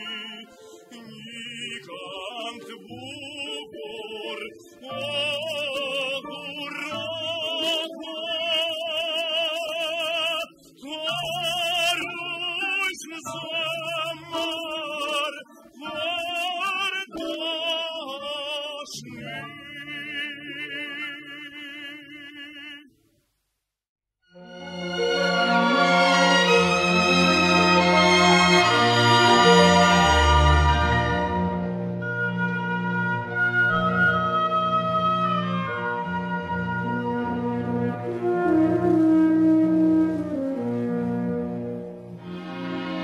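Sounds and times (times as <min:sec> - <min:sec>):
steady lower accompaniment: 0:24.5 - 0:43.0.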